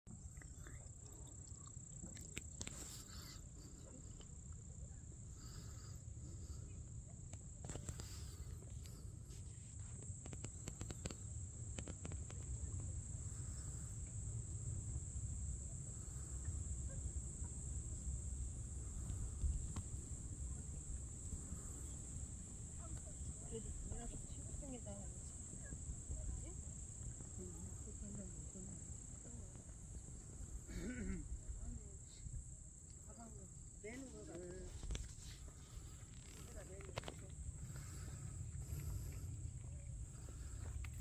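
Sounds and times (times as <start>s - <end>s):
crickets trilling: 0.1s - 41.0s
wind rumble on microphone: 18.5s - 30.6s.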